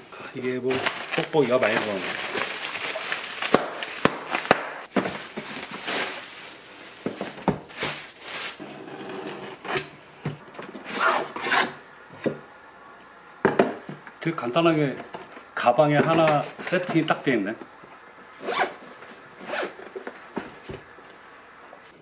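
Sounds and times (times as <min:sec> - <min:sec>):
bubble wrap rustling: 0:00.3 - 0:08.8.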